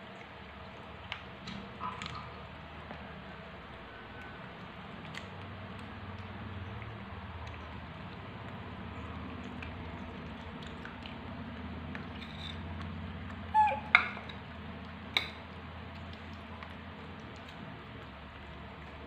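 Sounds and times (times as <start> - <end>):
monkeys handling fruit clicks: 0.1 - 19.0
monkey squeak: 13.5 - 14.3.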